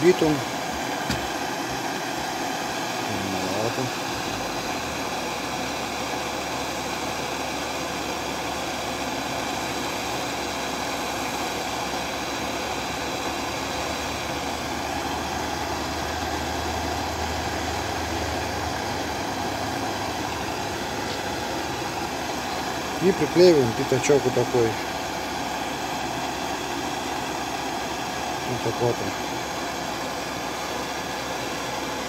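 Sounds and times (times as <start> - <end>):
gas torch flame hissing: 0.0 - 32.0.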